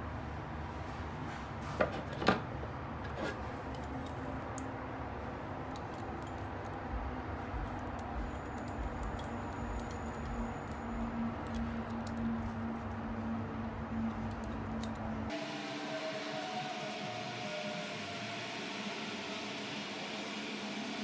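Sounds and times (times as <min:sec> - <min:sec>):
metal clamp clicking and clinking: 0:07.5 - 0:13.0, 0:13.6 - 0:15.3.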